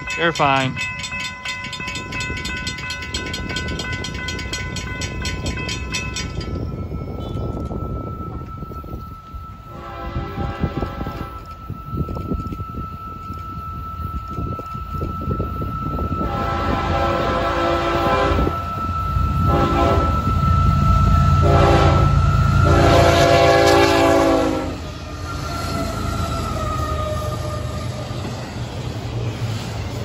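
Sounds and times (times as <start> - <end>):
freight cars rumbling and rattling: 0.0 - 9.6, 24.8 - 30.0
diesel locomotive engines rumbling: 0.0 - 30.0
train horn blasts: 7.2 - 7.6, 9.6 - 11.5, 16.0 - 28.0.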